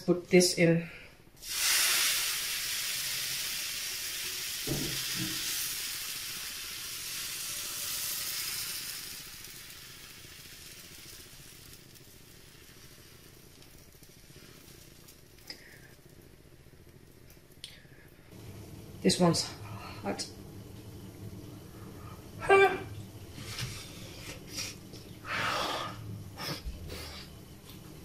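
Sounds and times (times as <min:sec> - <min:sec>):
batter sizzling in a frying pan: 0:01.4 - 0:20.8.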